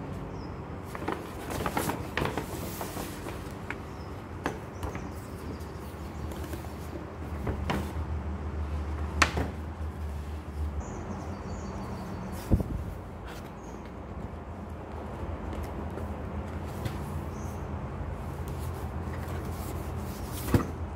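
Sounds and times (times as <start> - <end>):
paper bag and cardboard rustling: 0.8 - 8.0.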